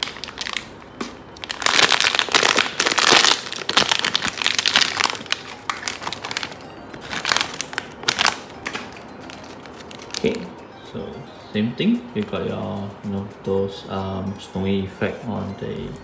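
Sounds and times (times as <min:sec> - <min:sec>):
plastic packaging crinkling: 0:00.0 - 0:10.5.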